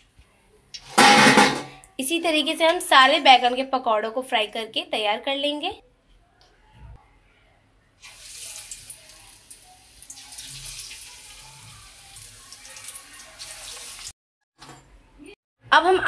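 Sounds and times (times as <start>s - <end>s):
battered slices sizzling in oil: 8.0s - 14.1s.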